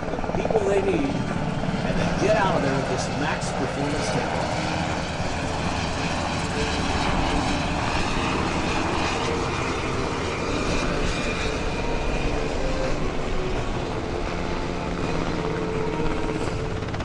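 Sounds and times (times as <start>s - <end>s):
faint high whine: 0.0s - 17.0s
helicopter engines: 0.0s - 17.0s
helicopter rotor beating: 0.0s - 17.0s.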